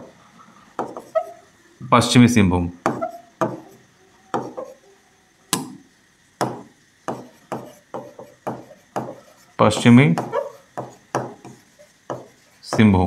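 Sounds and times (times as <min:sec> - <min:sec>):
pen tapping on writing board: 0:00.8 - 0:01.2, 0:02.8 - 0:03.7, 0:04.3 - 0:04.7, 0:05.5 - 0:05.8, 0:06.4 - 0:12.9.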